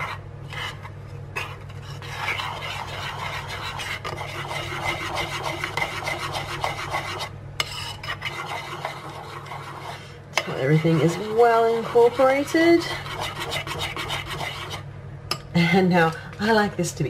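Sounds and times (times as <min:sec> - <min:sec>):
metal spoon scraping ceramic bowl: 0:02.0 - 0:14.8.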